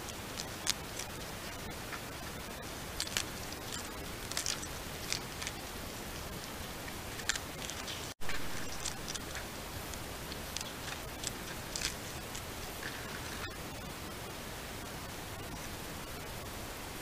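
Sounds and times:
animal chewing leaves crackling: 0:00.0 - 0:13.6
microphone hiss: 0:00.0 - 0:17.0.

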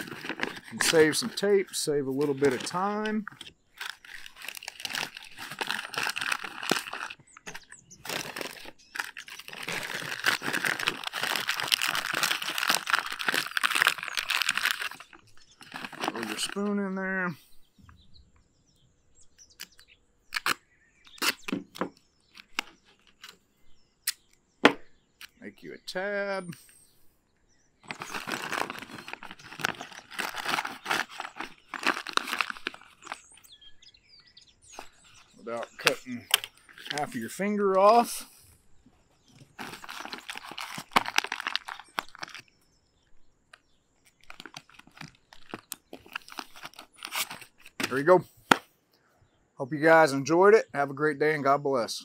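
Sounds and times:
plastic pouch crinkling: 0:00.0 - 0:16.7, 0:27.8 - 0:33.7, 0:34.6 - 0:38.2, 0:39.3 - 0:42.6, 0:44.0 - 0:48.6
duct tape ripping: 0:02.2 - 0:16.5, 0:20.3 - 0:21.6, 0:27.9 - 0:33.3, 0:44.2 - 0:48.6.

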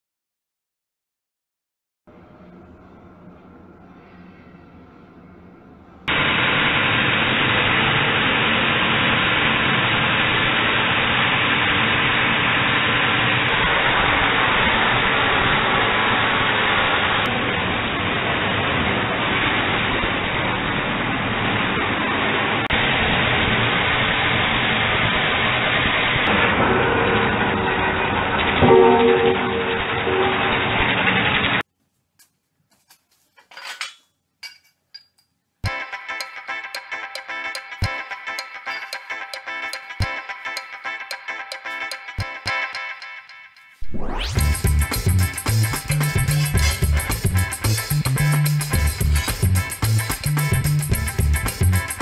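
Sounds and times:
chop saw cutting steel: 0:44.4 - 0:50.8.

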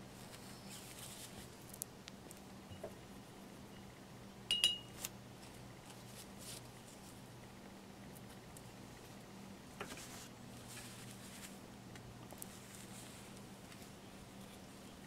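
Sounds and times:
low steady hum: 0:00.0 - 0:15.0
sharp ringing clink: 0:04.5 - 0:05.0
handling rustles: 0:09.8 - 0:11.6, 0:12.3 - 0:15.0.

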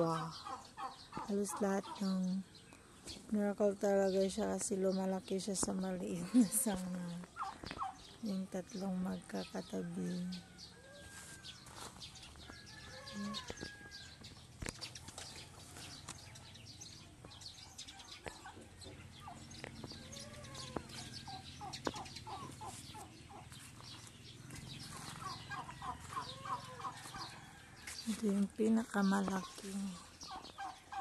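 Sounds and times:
chickens clucking: 0:00.0 - 0:02.2, 0:06.2 - 0:14.0, 0:17.2 - 0:28.2, 0:29.0 - 0:31.0.

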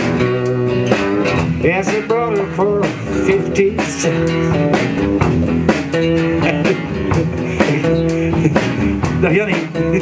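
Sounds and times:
acoustic guitars strumming: 0:00.0 - 0:10.0
drum kit: 0:00.0 - 0:10.0.

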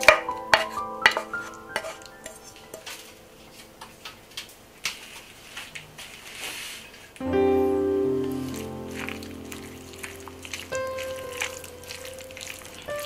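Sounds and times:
utensil scraping glass bowl: 0:00.5 - 0:02.4.

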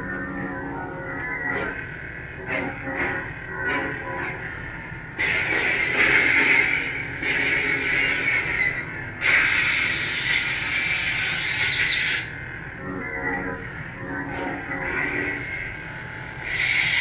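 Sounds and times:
lightsaber steady hum: 0:00.0 - 0:17.0
harsh hissing squealing effect: 0:08.0 - 0:12.4, 0:16.4 - 0:17.0.

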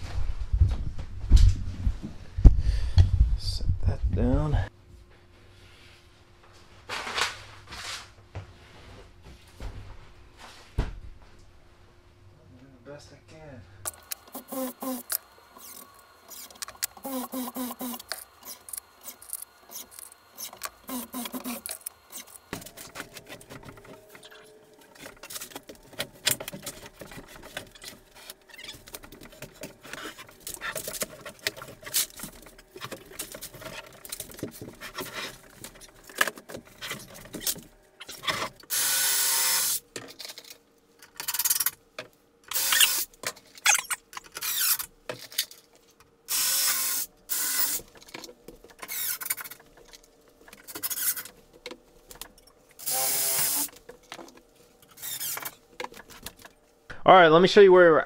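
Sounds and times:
cordless drill driving screws: 0:14.0 - 0:22.3, 0:42.5 - 0:43.0, 0:52.8 - 0:53.7.

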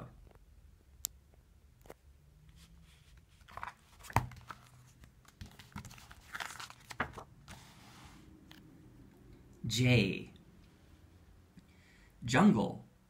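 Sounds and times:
paper pages rustling: 0:01.8 - 0:08.2
book cover tapping down: 0:03.6 - 0:04.5.

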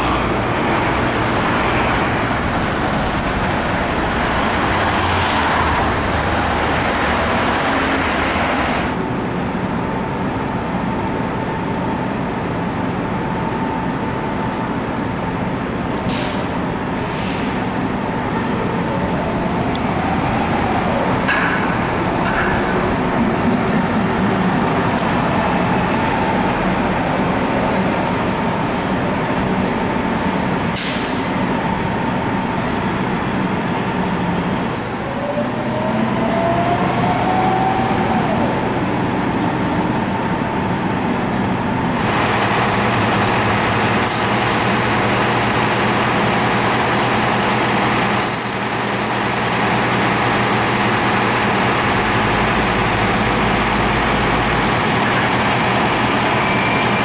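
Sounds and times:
bus engine whine rising: 0:00.0 - 0:45.6
buses running and pulling away: 0:00.0 - 0:57.0
air brake hiss: 0:16.1 - 0:16.5, 0:30.8 - 0:31.2.

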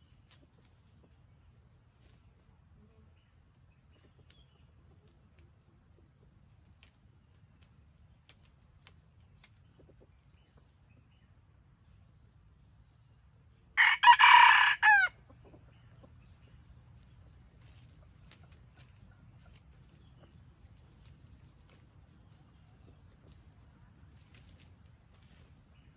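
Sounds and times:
faint forest background: 0:00.0 - 0:25.9
rooster crowing: 0:13.8 - 0:15.2.

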